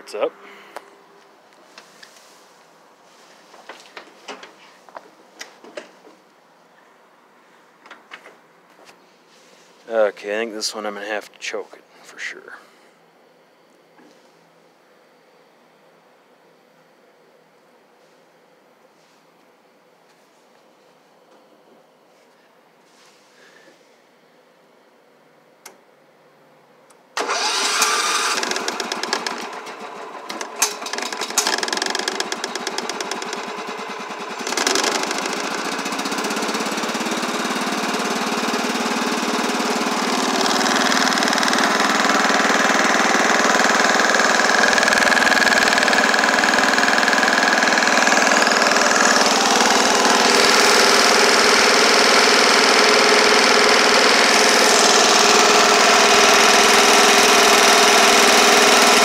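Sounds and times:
garden tractor engine running: 0:27.2 - 0:59.0.

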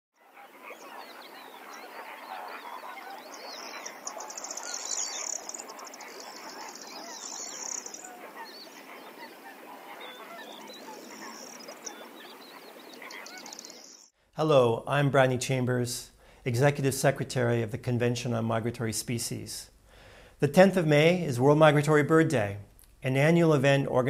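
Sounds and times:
flock of birds calling: 0:00.2 - 0:14.1.

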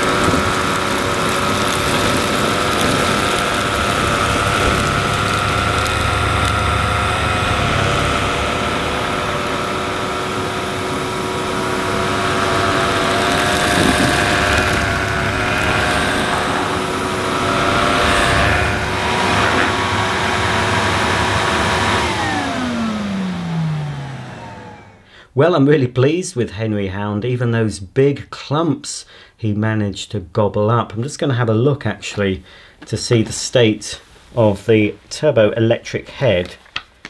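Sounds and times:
vacuum cleaner whining: 0:00.0 - 0:25.1.

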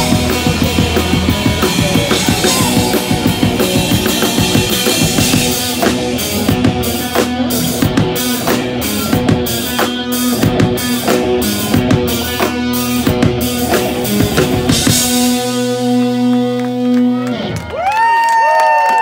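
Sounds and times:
live rock band playing: 0:00.0 - 0:18.2
crowd cheering and whooping: 0:01.3 - 0:04.0, 0:16.4 - 0:19.0.

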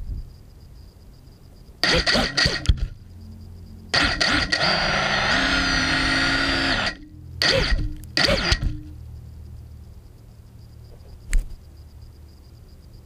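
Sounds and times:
quadcopter motors spinning up: 0:04.0 - 0:08.8.

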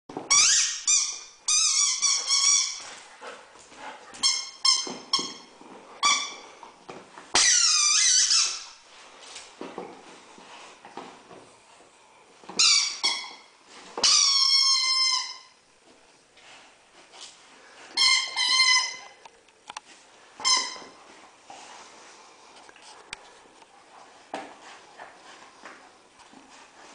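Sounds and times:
dog chewing squeaky toy: 0:00.3 - 0:03.0, 0:04.2 - 0:06.6, 0:07.3 - 0:08.8, 0:12.6 - 0:15.6, 0:18.0 - 0:19.2, 0:20.4 - 0:21.0.

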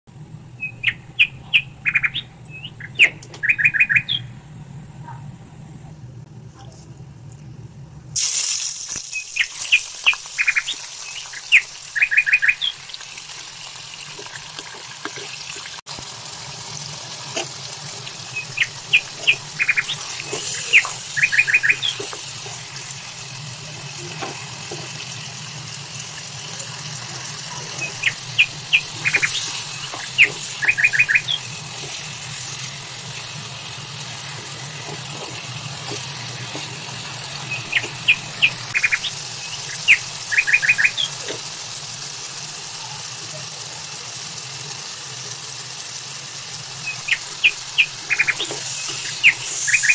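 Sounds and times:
bird singing chirpy phrase: 0:00.6 - 0:04.4, 0:27.5 - 0:31.6, 0:37.4 - 0:41.1
chicken sizzling in hot oil: 0:08.2 - 0:49.9.

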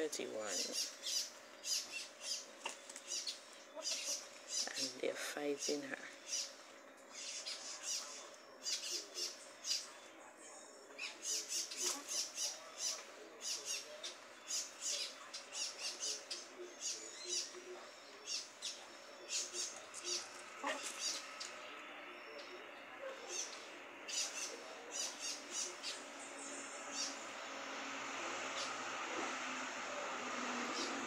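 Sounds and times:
chickens clucking softly: 0:03.7 - 0:04.3, 0:10.9 - 0:14.2
chickens pecking: 0:11.6 - 0:12.3.

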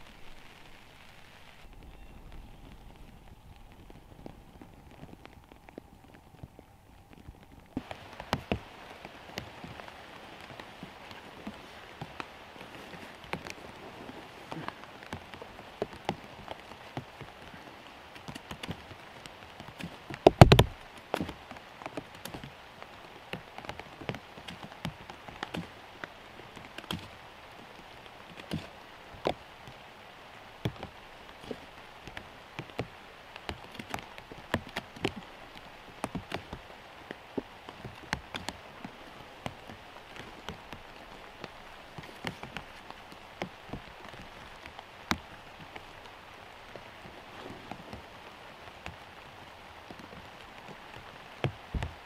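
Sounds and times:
steady rain falling: 0:00.0 - 0:52.0
loud dull thump: 0:20.3 - 0:20.8.

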